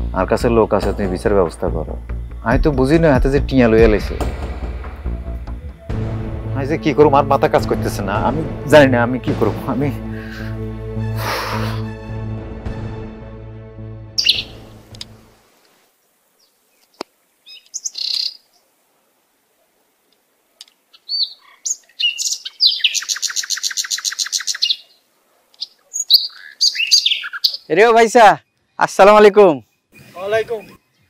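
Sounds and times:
background music: 0.0s - 15.4s
birds chirping: 14.1s - 31.0s
rapid bird trill: 14.2s - 14.7s, 17.4s - 18.6s, 20.9s - 27.8s.

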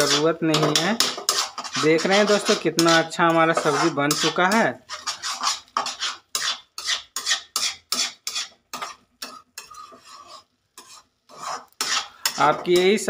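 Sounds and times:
metal spatula scraping a metal pan: 0.0s - 13.0s.

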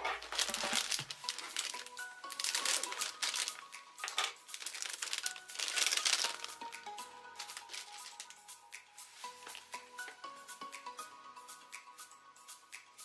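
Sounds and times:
plastic bags crinkling: 0.0s - 6.7s, 7.4s - 8.4s
soft background music: 0.0s - 13.0s.

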